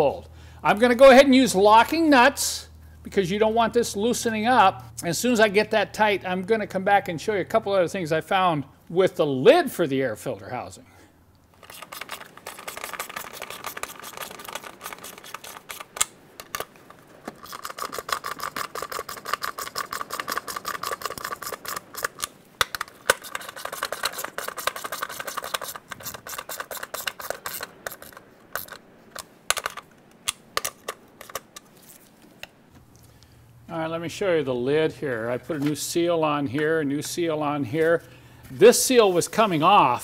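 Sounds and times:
hand ratchet clicking: 0:11.6 - 0:16.6, 0:17.2 - 0:29.8.

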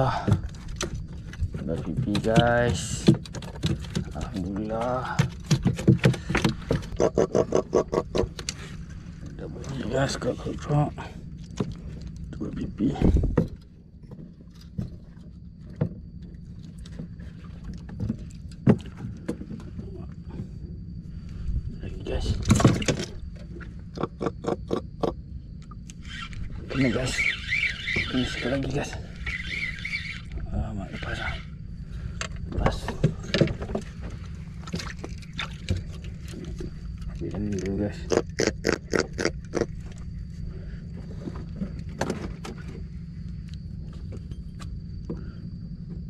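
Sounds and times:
steady low rumble: 0:00.0 - 0:46.0
knocks and taps in boat: 0:00.1 - 0:08.6, 0:13.0 - 0:20.6, 0:22.3 - 0:25.2, 0:32.2 - 0:37.7.

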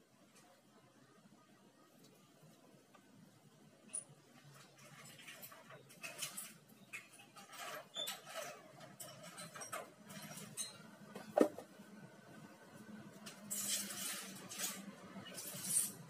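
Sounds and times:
metal scrapes rattles and clicks: 0:03.9 - 0:11.4, 0:13.3 - 0:16.0.

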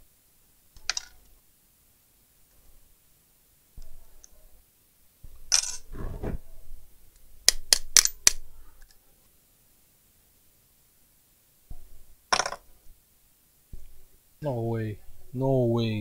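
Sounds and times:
scraping rustle: 0:05.8 - 0:06.4.

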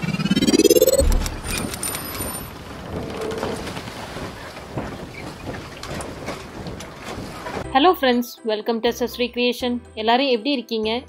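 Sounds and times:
noisy rumble with crackles: 0:00.0 - 0:07.6
deep boom: 0:00.9 - 0:01.7.

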